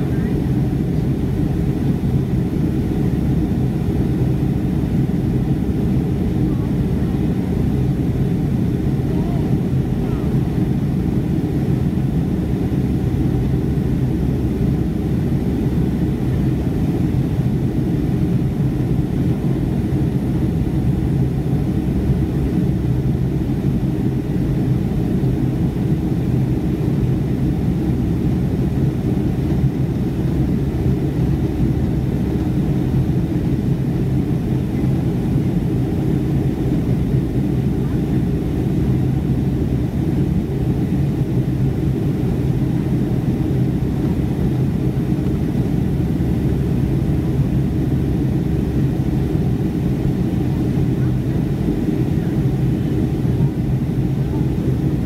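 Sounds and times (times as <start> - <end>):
constant low hum: 0.0 - 55.0
jet engine roar in cabin: 0.0 - 55.0.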